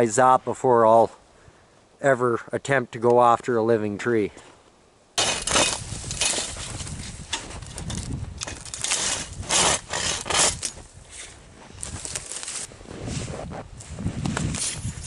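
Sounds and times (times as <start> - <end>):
hand saw rasping through branch: 5.2 - 7.4, 8.4 - 11.3.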